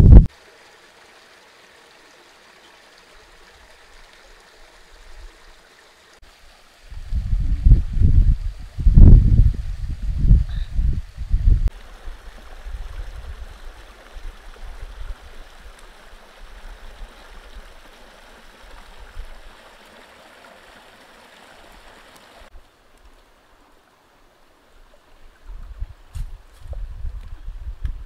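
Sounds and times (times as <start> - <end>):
stream running over stones: 0.0 - 28.0.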